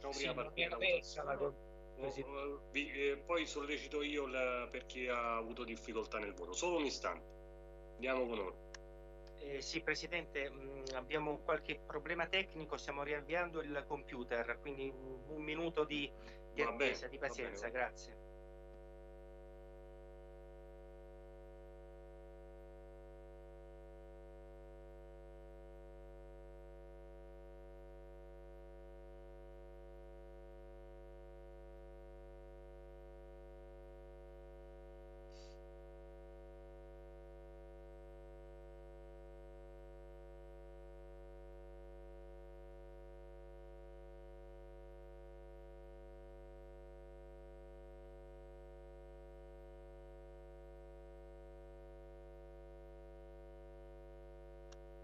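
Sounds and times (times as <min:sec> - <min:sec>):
faint electrical mains hum: 0:00.0 - 0:55.0.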